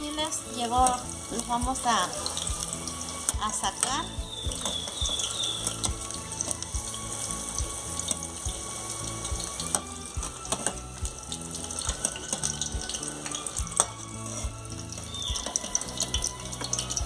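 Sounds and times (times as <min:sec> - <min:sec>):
chiles sizzling in hot oil: 0:00.0 - 0:17.0
metal spoon scraping a pan: 0:13.8 - 0:16.9.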